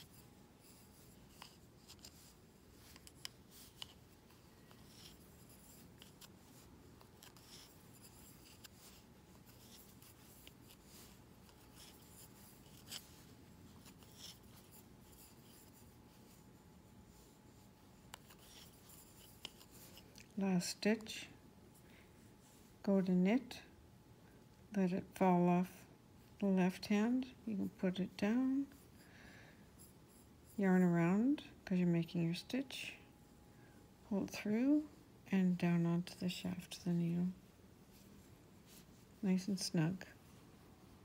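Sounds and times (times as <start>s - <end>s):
wool yarn rubbing: 0.0s - 20.1s.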